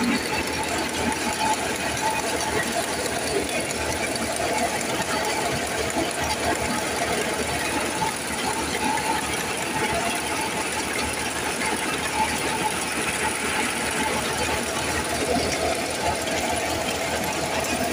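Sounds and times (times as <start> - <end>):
tractor engine running: 0.0 - 17.9
wheat thresher running: 0.0 - 17.9.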